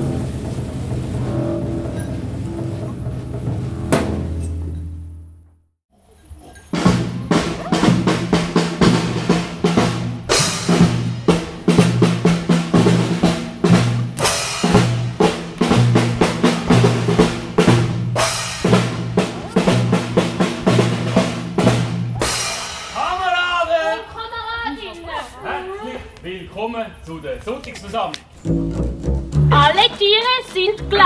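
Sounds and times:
fast drumbeat: 6.7 - 23.5, 28.8 - 31.0
low bass line: 28.4 - 29.8, 30.7 - 31.0.

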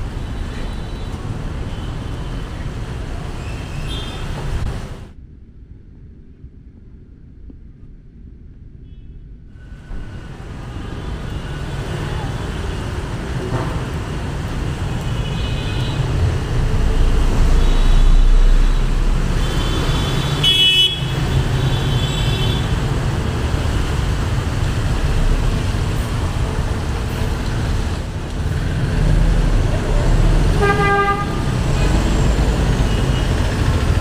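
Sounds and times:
traffic rumble on wet road: 0.0 - 5.2, 9.6 - 34.0
vehicle horns honking: 19.4 - 22.7, 30.6 - 32.1.

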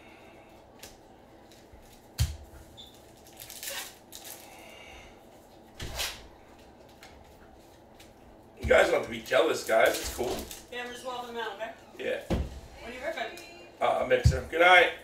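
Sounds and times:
dull thud: 12.3 - 12.7.

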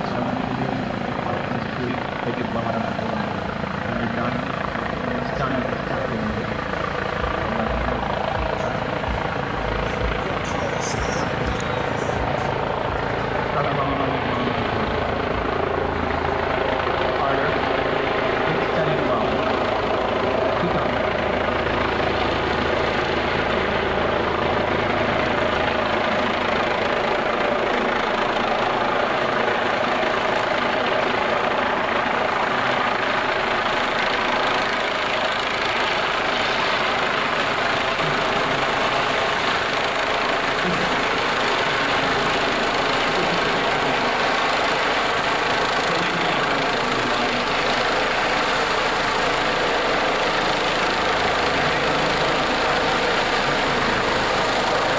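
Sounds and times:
helicopter rotor drone: 0.0 - 54.9
turbine whine: 0.0 - 54.9.

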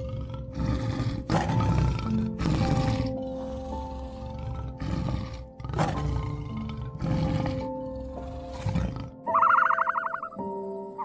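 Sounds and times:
tiger roaring: 0.0 - 9.3
background music: 0.0 - 11.0
high trilling call: 9.3 - 10.4.

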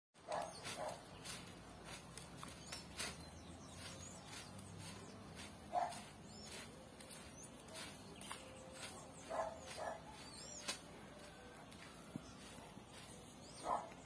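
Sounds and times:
dog barking: 0.3 - 1.1, 5.7 - 6.1, 9.2 - 10.2, 13.6 - 14.0.

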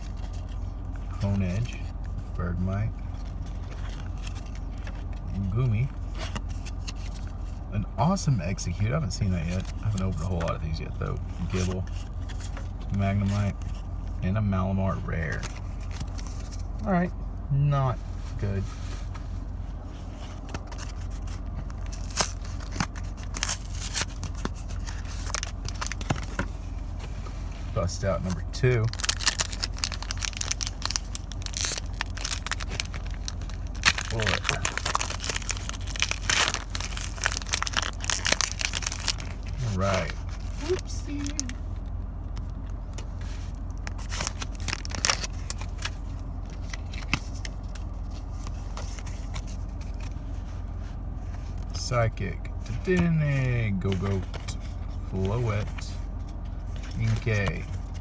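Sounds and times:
steady low hum: 0.0 - 58.0
foil wrapper crinkling: 20.4 - 26.4, 28.3 - 50.2.

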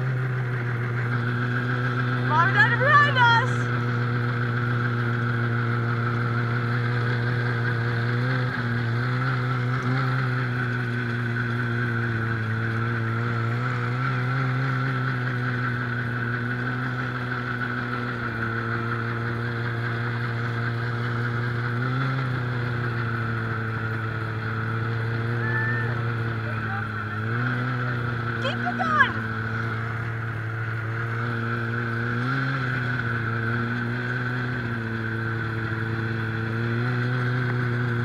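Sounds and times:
snowmobile engine running: 0.0 - 38.0.

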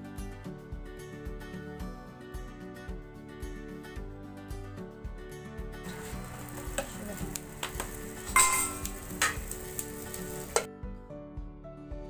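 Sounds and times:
background music: 0.0 - 12.0
metal tool clinking on pan lid: 8.3 - 9.5
ringing metal clang: 8.4 - 8.9.

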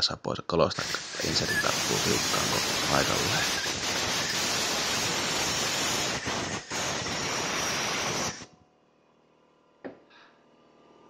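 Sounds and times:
compressed air blow gun hissing: 0.8 - 8.5.

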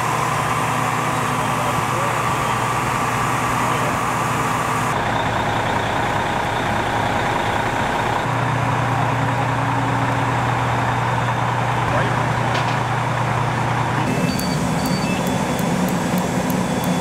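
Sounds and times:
diesel engine driving a pump: 0.0 - 17.0
high-pitched pump whine: 14.0 - 17.0.

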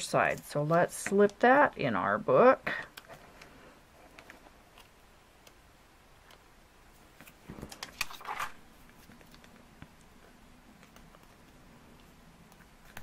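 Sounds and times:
paper rustling: 7.2 - 9.6.

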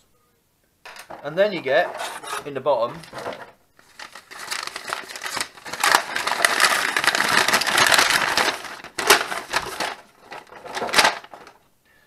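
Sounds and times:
paper rustling and crackling: 2.9 - 11.6.

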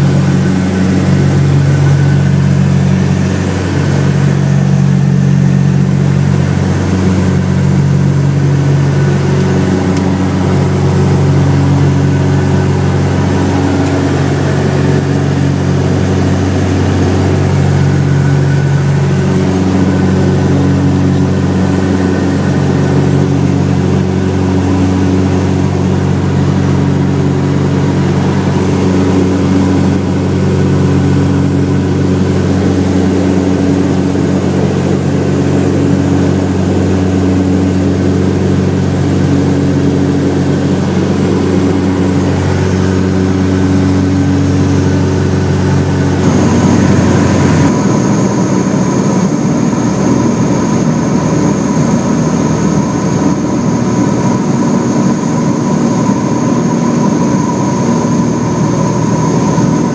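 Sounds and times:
aircraft engines and propellers droning: 0.0 - 59.9.

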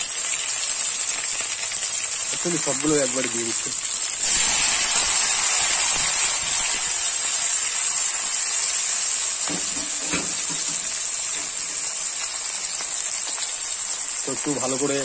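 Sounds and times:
vegetables sizzling in hot oil: 0.0 - 15.0.

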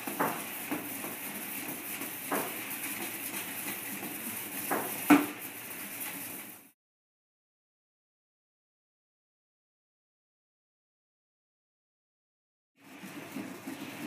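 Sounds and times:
pan knocking and scraping on steel: 0.0 - 5.4.

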